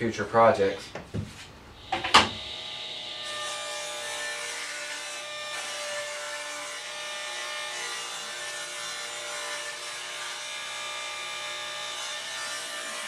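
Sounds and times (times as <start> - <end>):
table saw ripping wood: 1.8 - 10.8.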